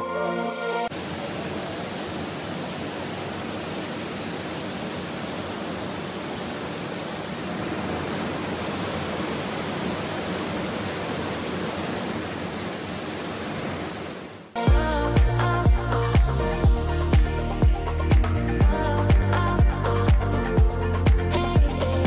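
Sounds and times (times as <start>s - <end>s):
waterfall rushing: 0.9s - 14.6s.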